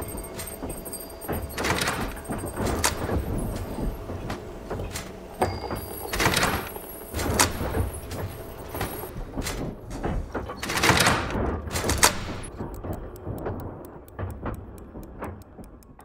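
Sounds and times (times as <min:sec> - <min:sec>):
metal parts rattling: 0:00.0 - 0:13.6
fast even ticks: 0:12.1 - 0:16.0.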